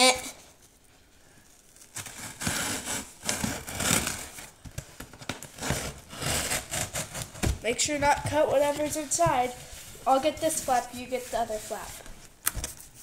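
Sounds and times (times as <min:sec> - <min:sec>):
scissors cutting packing tape: 0:01.9 - 0:04.5.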